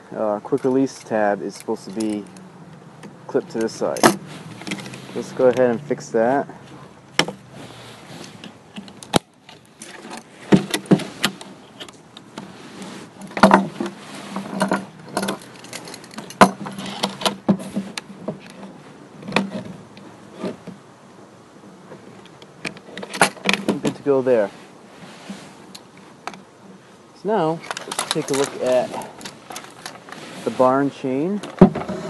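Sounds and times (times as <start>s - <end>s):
metal strap hook clinking: 0.5s - 2.5s, 3.5s - 5.7s, 14.5s - 17.3s, 27.6s - 30.1s.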